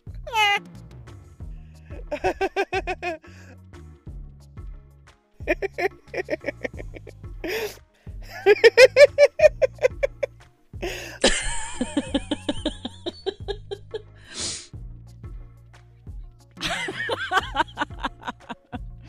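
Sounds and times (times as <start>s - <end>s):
background music with bass line: 0.0s - 19.0s
laugh track giggles and chuckles: 1.8s - 3.5s, 5.4s - 14.3s, 16.6s - 19.0s.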